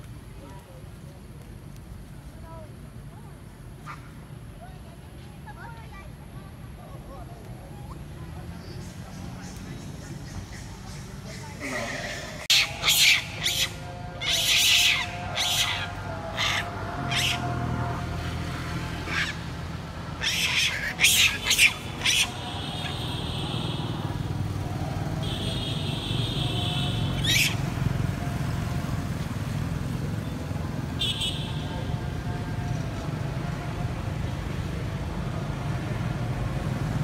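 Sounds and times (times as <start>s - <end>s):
passing traffic rumble: 0.0s - 37.0s
monkeys screaming: 11.5s - 17.8s, 18.9s - 23.3s, 27.0s - 27.8s.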